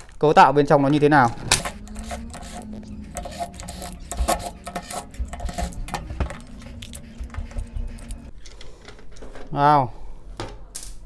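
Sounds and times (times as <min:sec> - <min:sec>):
faint low hum: 0:01.2 - 0:08.3.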